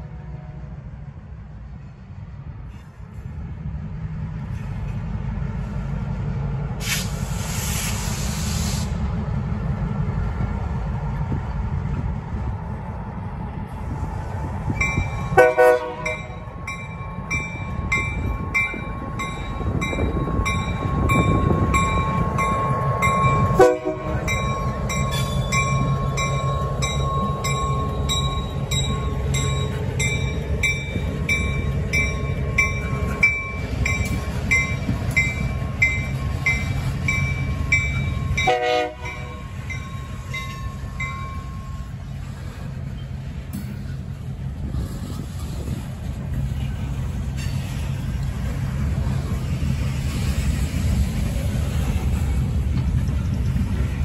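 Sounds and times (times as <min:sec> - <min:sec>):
locomotive and wheels rumbling: 0:00.0 - 0:54.0
air hiss: 0:06.8 - 0:09.1.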